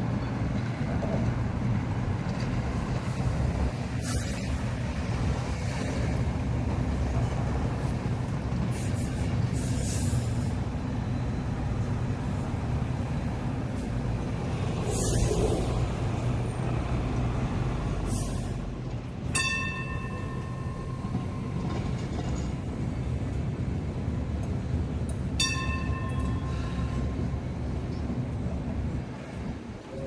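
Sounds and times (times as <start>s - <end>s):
tram rumbling: 0.0s - 30.0s
bell-like ringing tone: 19.3s - 21.8s, 25.4s - 27.2s.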